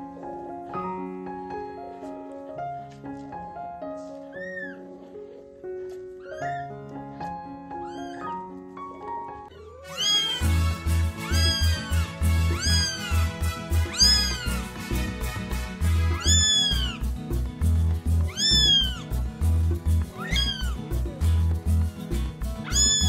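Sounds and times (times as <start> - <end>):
kitten meowing: 4.3 - 4.9, 6.2 - 6.7, 7.8 - 8.4, 9.5 - 10.5, 11.1 - 14.6, 16.1 - 17.0, 18.3 - 19.0, 20.1 - 21.0, 22.6 - 23.0
music with pulsing bass: 10.3 - 23.0.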